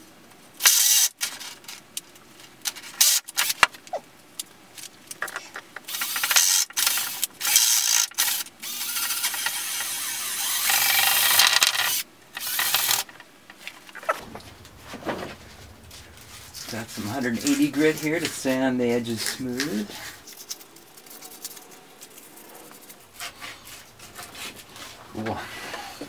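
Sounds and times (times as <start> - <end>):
power drill running: 5.9 - 13.1.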